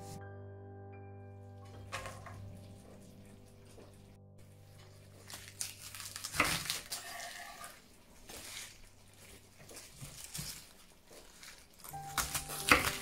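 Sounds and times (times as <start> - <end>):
leaves rustling and crinkling: 1.7 - 13.0.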